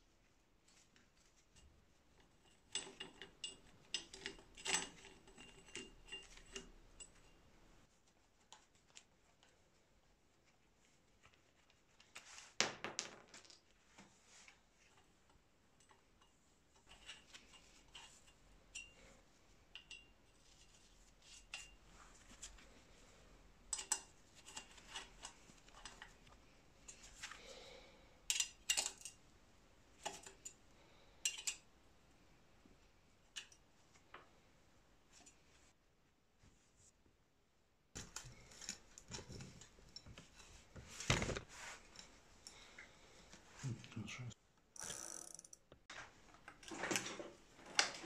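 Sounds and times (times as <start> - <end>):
hex key working a bolt: 44.8 - 45.7.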